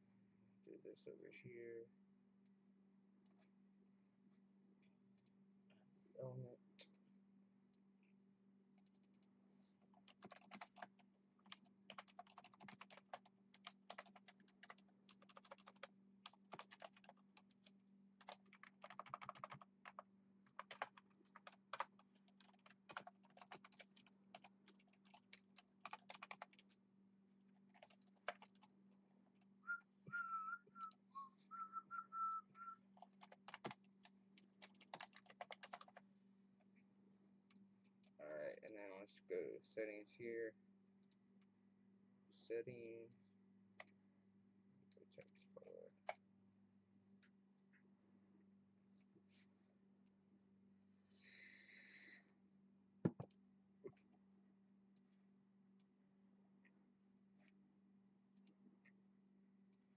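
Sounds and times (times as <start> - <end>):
typing on computer keyboard: 10.0 - 26.7, 27.7 - 28.7, 33.0 - 36.0
person whistling: 29.7 - 32.8.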